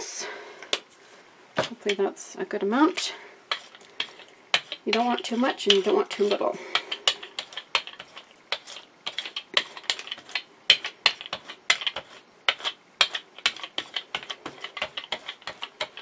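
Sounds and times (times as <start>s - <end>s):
paint roller clicking on plate: 3.5s - 16.0s.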